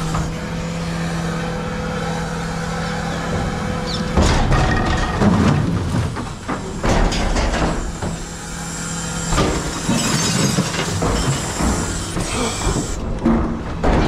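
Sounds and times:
truck engine and hydraulics hum: 0.0 - 14.0.

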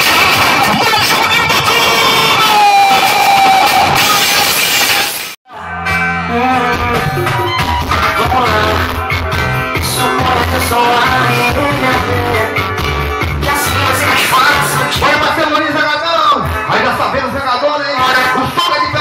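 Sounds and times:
music with heavy bass: 0.0 - 19.0
person singing: 5.5 - 9.1, 9.7 - 12.7, 13.3 - 15.0.

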